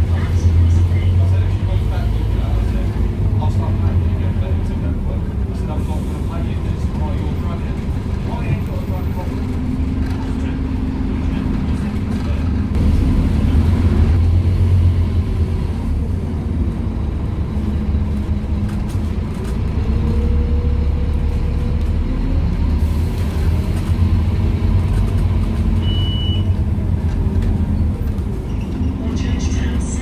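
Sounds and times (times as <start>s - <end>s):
bus engine rumbling: 0.0s - 30.0s
short high beep: 25.8s - 26.5s.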